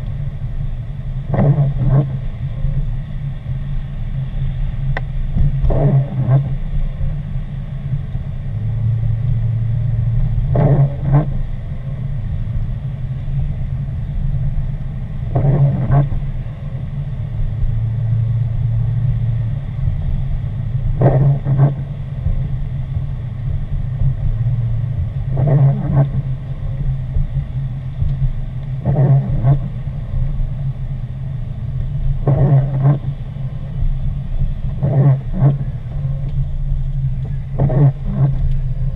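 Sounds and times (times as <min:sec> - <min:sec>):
car engine and tyres rumbling: 0:00.0 - 0:38.9
windshield wipers swishing: 0:00.6 - 0:38.9.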